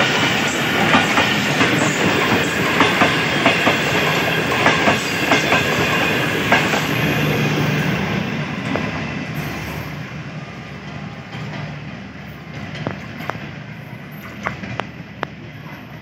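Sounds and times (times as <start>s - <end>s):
train coaches rolling past: 0.0s - 16.0s
wheels clicking over rail joints: 10.8s - 16.0s.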